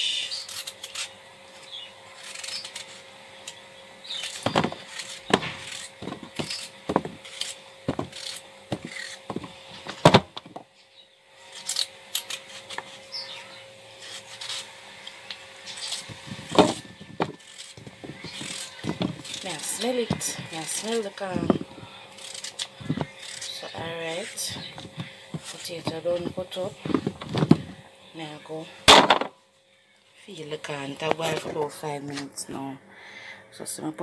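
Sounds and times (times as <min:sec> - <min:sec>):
knife cutting raw potato: 0:04.1 - 0:09.6, 0:15.7 - 0:27.8.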